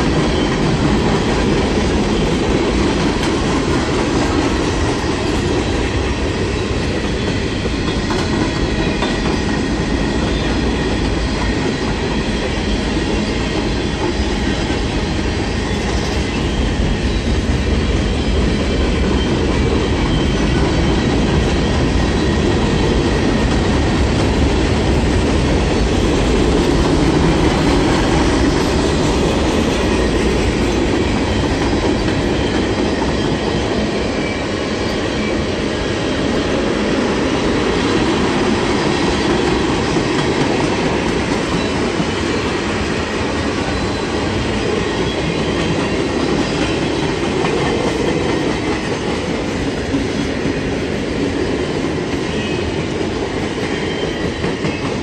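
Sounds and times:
train wheels clattering on rails: 0.0 - 55.0.

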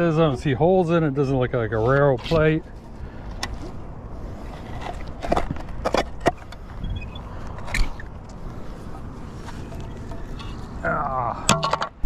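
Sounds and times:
scrap metal clicking and knocking: 11.5 - 12.0.

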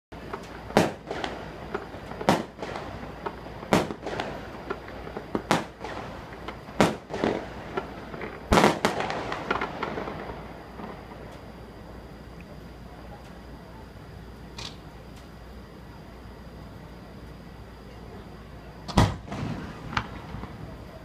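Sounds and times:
fireworks bangs: 0.2 - 11.3, 18.9 - 21.0
fireworks crackling: 0.2 - 13.0, 18.9 - 21.0.

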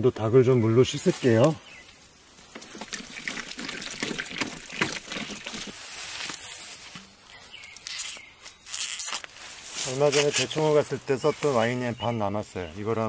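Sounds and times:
water trickling and splashing: 2.4 - 5.9.

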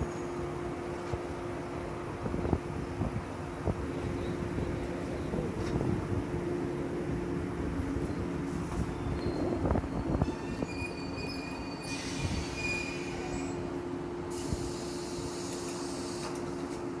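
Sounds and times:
train equipment hum: 0.0 - 17.0
train clunks: 8.0 - 17.0
train brake squeal: 8.7 - 13.7, 14.3 - 16.6
air hissing: 14.3 - 16.4.

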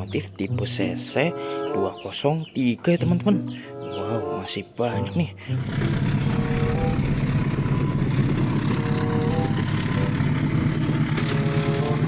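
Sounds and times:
diesel locomotive engine droning: 3.0 - 12.0
passenger train passing: 5.0 - 12.0.

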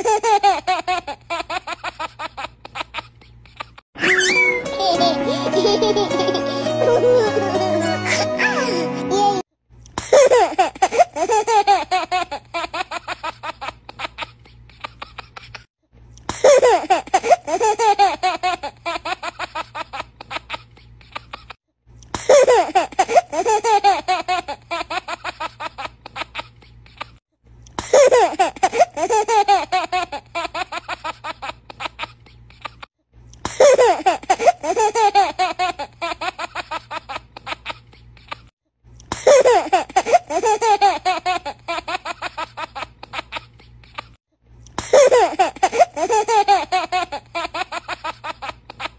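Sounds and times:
baby laughing: 0.0 - 9.4, 10.0 - 15.7, 16.3 - 21.6, 22.2 - 27.2, 27.8 - 38.5, 39.1 - 44.2, 44.8 - 48.9.

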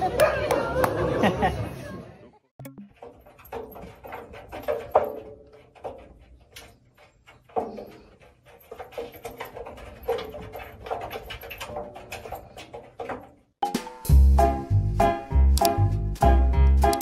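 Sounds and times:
knocks and clatters in washing machine drum: 2.9 - 14.0.

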